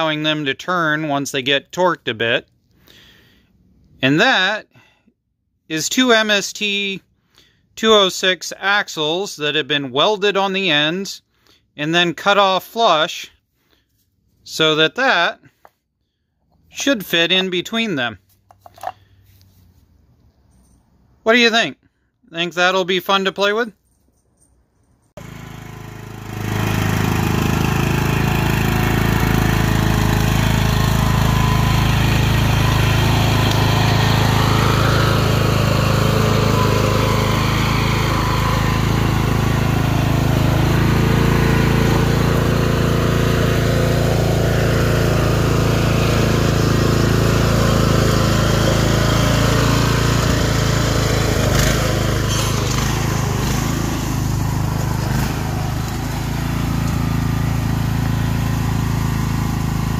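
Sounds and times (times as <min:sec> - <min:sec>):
lawn tractor engine running: 0:25.1 - 0:59.9.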